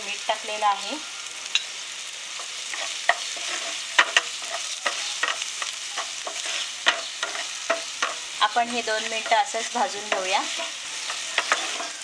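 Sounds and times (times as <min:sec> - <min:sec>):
vegetables sizzling in oil: 0:00.0 - 0:12.0
wooden spatula scraping a pan: 0:02.4 - 0:08.4, 0:09.2 - 0:12.0.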